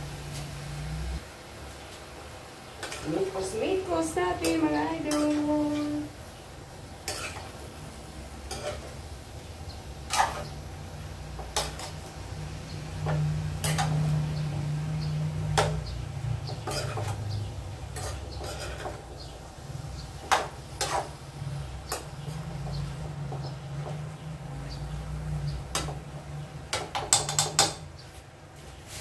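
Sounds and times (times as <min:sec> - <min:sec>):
spatula scraping a frying pan: 0:07.0 - 0:07.6, 0:08.4 - 0:09.0, 0:10.0 - 0:10.7, 0:11.3 - 0:12.4, 0:13.0 - 0:14.2, 0:16.4 - 0:19.1, 0:20.2 - 0:21.2.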